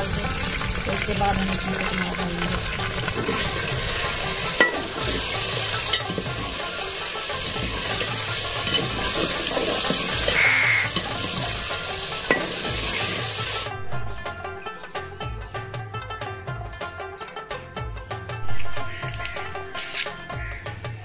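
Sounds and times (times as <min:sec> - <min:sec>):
meat sizzling in pot: 0:00.0 - 0:13.7
music: 0:00.0 - 0:21.0
ladle clinking on metal pot: 0:00.8 - 0:06.6, 0:07.4 - 0:11.5, 0:12.2 - 0:13.0.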